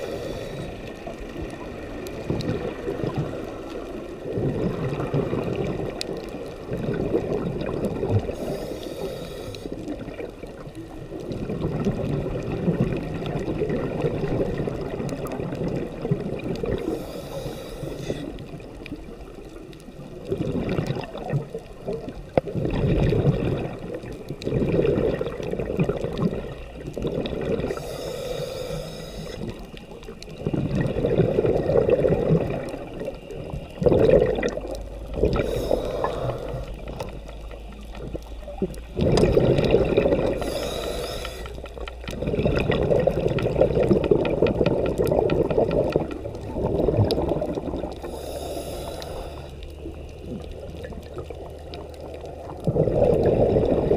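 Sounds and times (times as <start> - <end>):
diver breathing: 0.0 - 1.0, 8.2 - 9.9, 16.8 - 18.5, 27.6 - 29.6, 35.2 - 37.2, 40.2 - 42.6, 47.9 - 49.8
regulator bubbles hissing: 0.0 - 53.9
underwater gurgling rush of water: 0.0 - 53.9.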